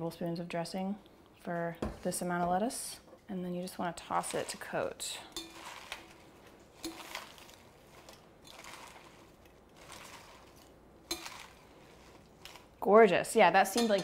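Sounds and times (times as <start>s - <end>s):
lettuce rustling and crunching: 4.1s - 12.8s.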